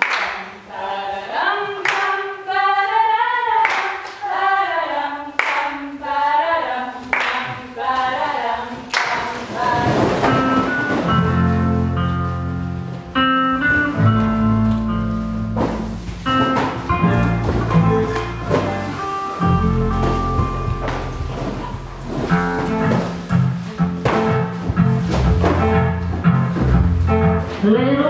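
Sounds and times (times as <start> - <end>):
sharp hand claps: 0.0 - 0.6, 3.6 - 4.2, 5.4 - 5.7
voices singing a melody: 0.4 - 11.3
instrumental music with bass line: 10.4 - 28.0.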